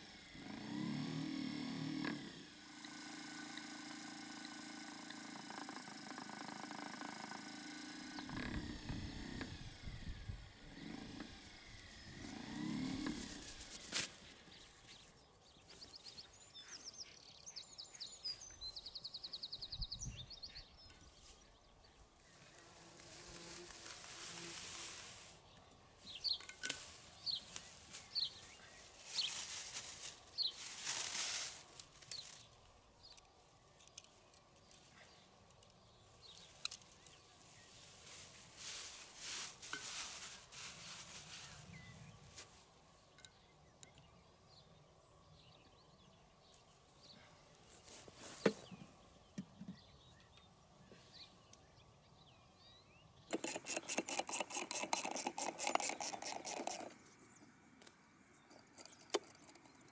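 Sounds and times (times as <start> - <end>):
wheel ticking rapidly: 2.7 - 9.5, 53.3 - 56.9
plastic tape rustling: 26.4 - 32.6.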